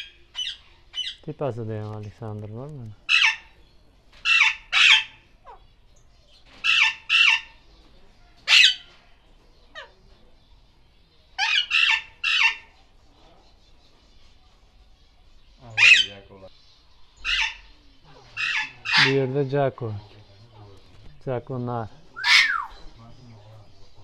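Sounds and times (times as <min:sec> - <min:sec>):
parakeets squawking: 0:00.0 - 0:01.3, 0:03.0 - 0:03.6, 0:04.2 - 0:05.8, 0:06.4 - 0:07.6, 0:08.4 - 0:08.9, 0:11.4 - 0:12.8, 0:15.5 - 0:24.0.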